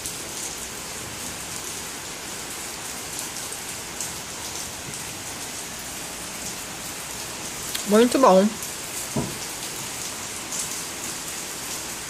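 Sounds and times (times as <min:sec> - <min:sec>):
steady rain hiss: 0:00.0 - 0:12.0
raindrop taps: 0:09.0 - 0:09.8.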